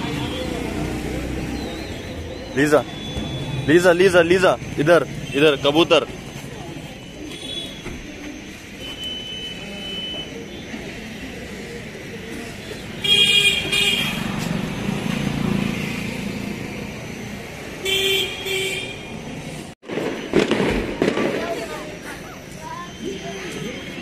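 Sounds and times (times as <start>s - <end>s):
road traffic: 0.0s - 24.0s
vehicle horn honking: 13.0s - 14.3s, 17.8s - 19.1s.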